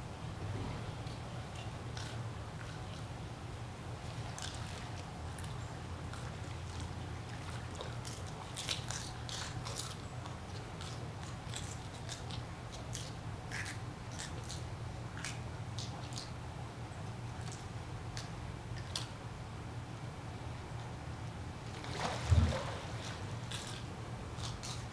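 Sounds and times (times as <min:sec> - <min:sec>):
steady low hum: 0:00.0 - 0:24.9
otters crunching shellfish: 0:23.5 - 0:24.9.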